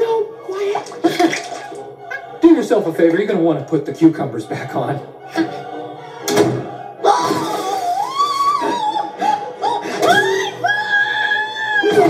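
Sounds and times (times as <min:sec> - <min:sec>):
woman screaming: 0:07.1 - 0:12.0.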